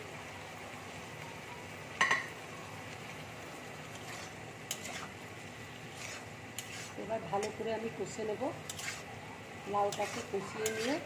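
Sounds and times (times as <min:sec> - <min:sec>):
frying sizzle: 0:00.0 - 0:11.0
spatula scraping a wok: 0:03.8 - 0:11.0.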